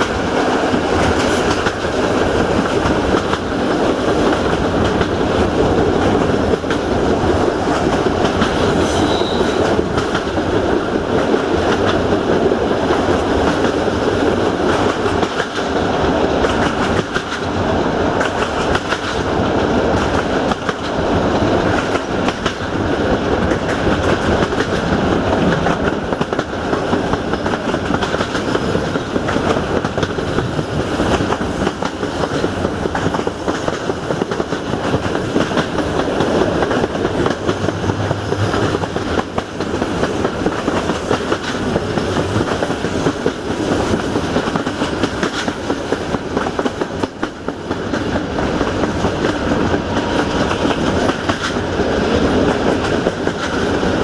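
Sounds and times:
train wheels rumbling and clicking: 0:00.0 - 0:54.0.

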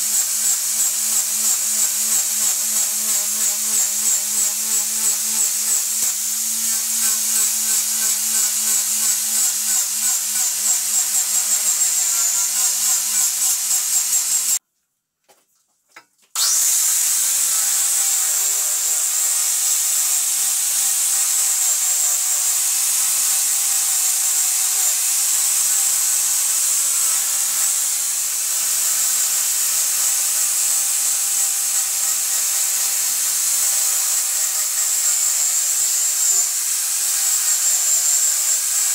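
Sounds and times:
angle grinder sanding wood: 0:00.0 - 0:14.6, 0:16.4 - 0:38.9.

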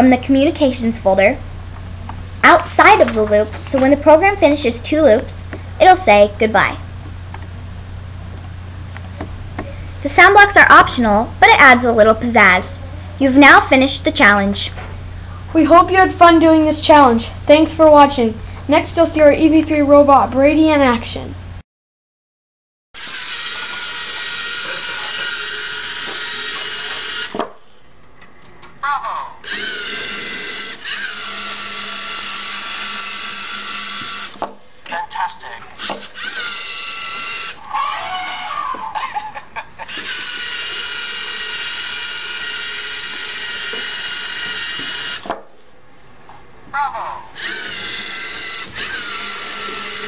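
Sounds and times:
toy robot motors whirring: 0:23.0 - 0:27.4, 0:29.4 - 0:34.4, 0:35.0 - 0:45.3, 0:47.4 - 0:50.0.

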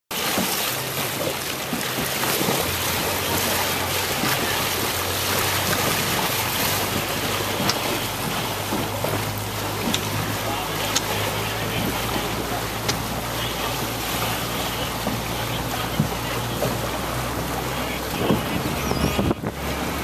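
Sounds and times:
water rushing and splashing: 0:00.1 - 0:20.0
wind buffeting microphone: 0:13.9 - 0:20.0.

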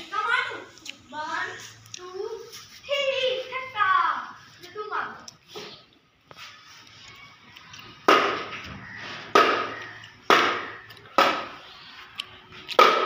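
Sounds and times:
plastic toy bat knocks: 0:08.1 - 0:08.5, 0:09.3 - 0:09.7, 0:10.3 - 0:11.5, 0:12.8 - 0:13.0.

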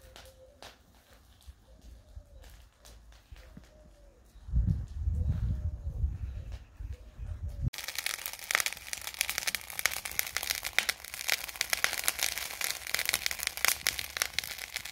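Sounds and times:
charcoal crackling and popping: 0:00.0 - 0:04.1, 0:07.6 - 0:14.9.

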